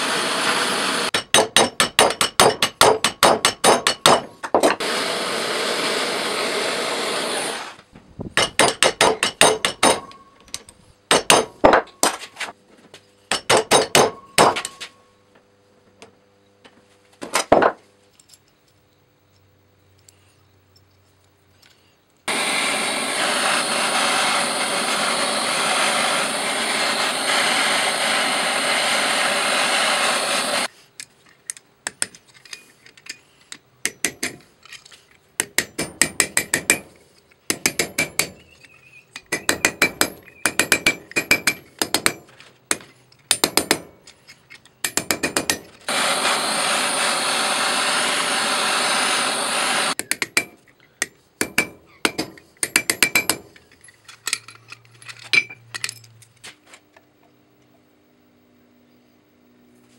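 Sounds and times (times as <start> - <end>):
blowtorch hissing: 0.0 - 1.1, 4.8 - 7.8, 22.3 - 30.7, 45.9 - 50.0
hammer striking metal on anvil: 1.1 - 4.3, 8.4 - 10.3, 11.1 - 12.2, 13.3 - 14.8, 50.0 - 53.5.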